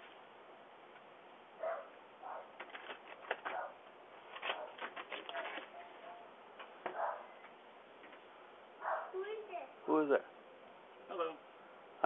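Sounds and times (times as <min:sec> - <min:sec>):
dog barking: 0:01.6 - 0:02.6, 0:03.5 - 0:03.8, 0:04.5 - 0:04.8, 0:06.9 - 0:07.3, 0:08.8 - 0:09.2.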